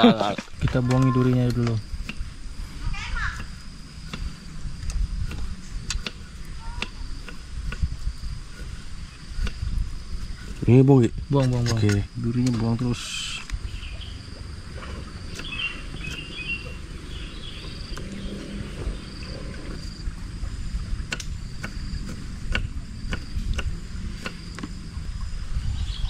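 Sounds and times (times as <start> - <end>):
high insect buzz: 0.0 - 26.0
faint bird chirps: 15.3 - 19.5, 25.4 - 26.0.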